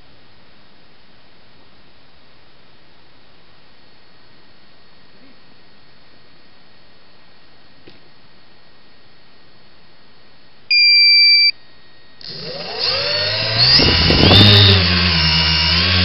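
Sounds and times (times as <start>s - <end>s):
high electronic beep: 10.7s - 11.6s
electric motors whining: 12.2s - 16.0s.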